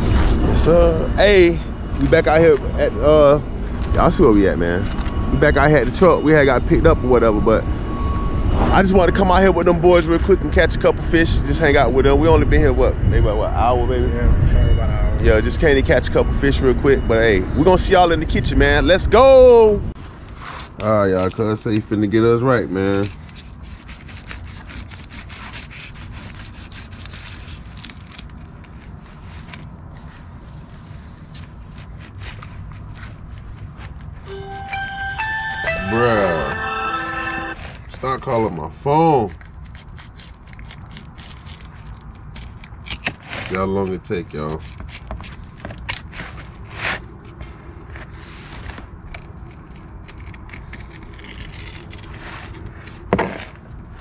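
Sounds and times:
low steady rumble: 0.0 - 20.8
knife scraping through fish scales: 22.7 - 30.3, 39.2 - 43.6, 44.5 - 54.0.

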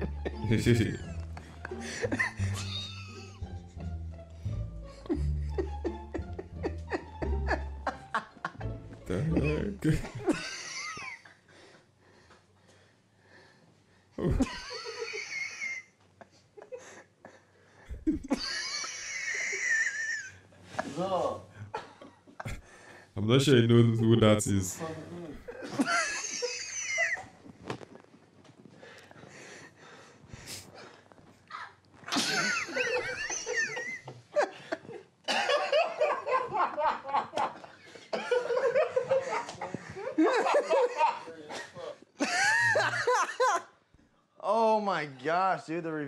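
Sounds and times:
person wheezing laugh: 1.7 - 3.5, 14.2 - 15.9, 17.9 - 20.4.

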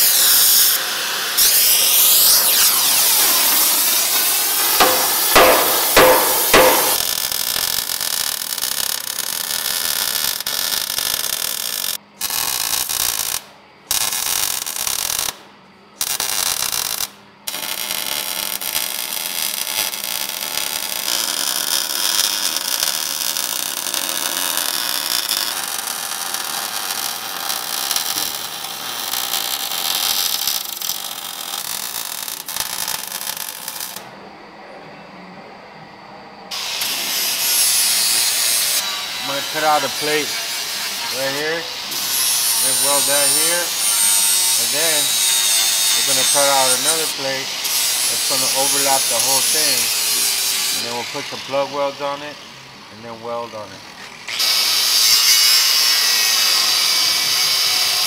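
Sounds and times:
welder crackling: 0.0 - 15.4, 16.0 - 34.0, 36.5 - 52.2
hammer blows on steel: 4.6 - 7.1.

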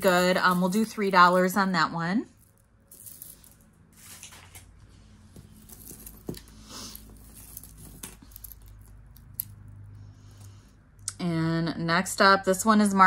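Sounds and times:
metal chains and beads clicking: 0.0 - 3.8, 5.4 - 10.0.

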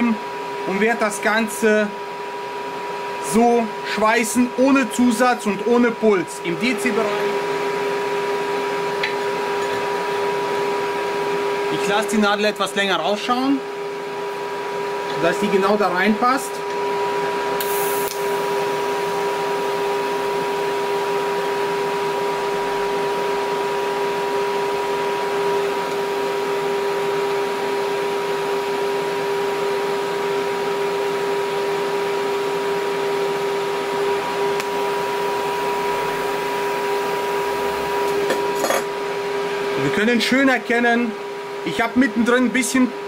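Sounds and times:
welding arc hiss and buzz: 17.4 - 23.8, 34.3 - 38.9.

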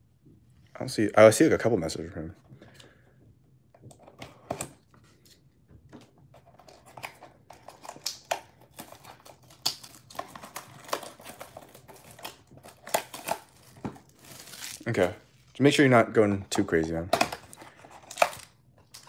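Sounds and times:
cellophane crinkling: 6.4 - 15.2.

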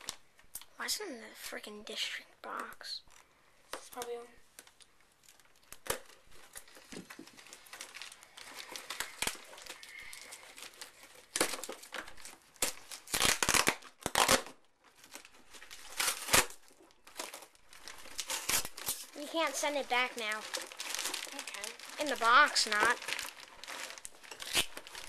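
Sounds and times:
cardboard and plastic tearing: 3.8 - 25.0.

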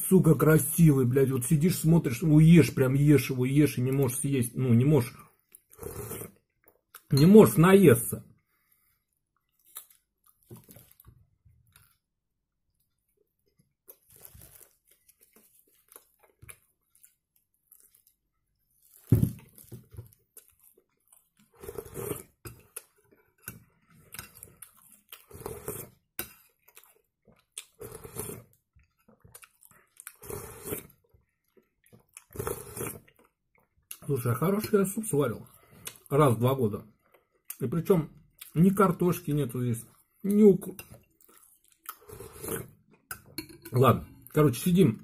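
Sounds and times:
slurping from a spoon: 5.1 - 6.6, 21.4 - 26.6, 27.6 - 28.6, 29.6 - 31.1, 32.2 - 33.2, 40.8 - 43.0
chewing: 12.8 - 34.1, 40.8 - 43.4.

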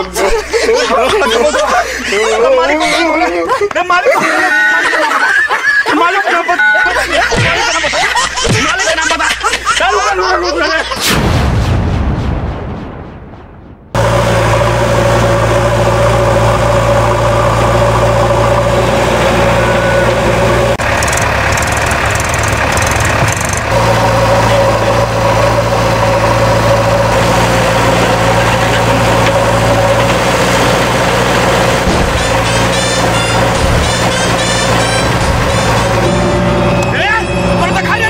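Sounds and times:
diesel engines running: 0.0 - 10.9, 13.9 - 38.0.

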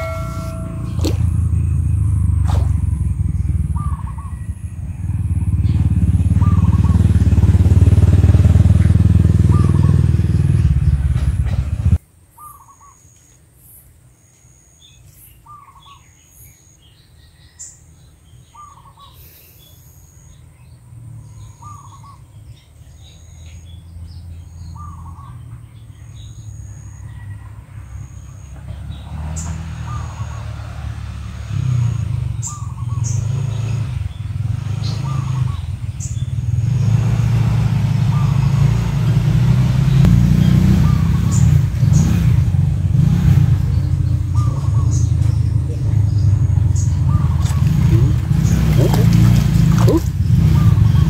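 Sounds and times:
high chirp: 0.0 - 2.4
loud low rumble: 0.0 - 12.0.

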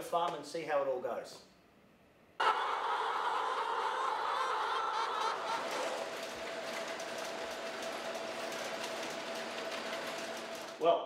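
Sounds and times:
hens clucking: 2.4 - 8.2
machine hum with light clicking: 3.3 - 10.8.

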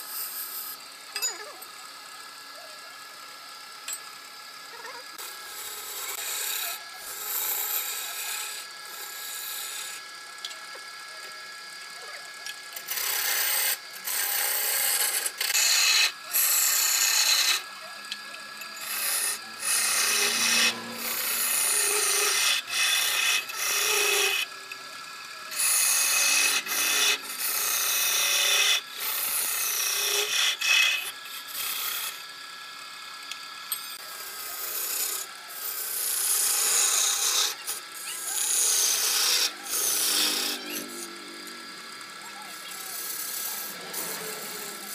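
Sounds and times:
turning tool scraping spinning wood: 12.8 - 24.6, 25.5 - 32.2, 34.0 - 44.9.

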